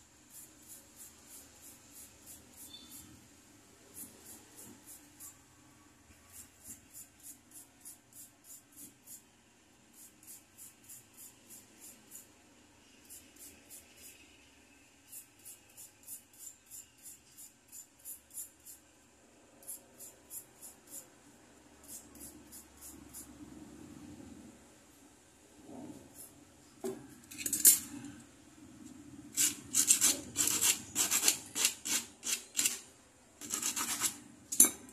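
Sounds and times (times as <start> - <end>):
metal bangle scraping wooden stick: 2.2 - 3.2, 29.3 - 32.8, 33.4 - 34.9.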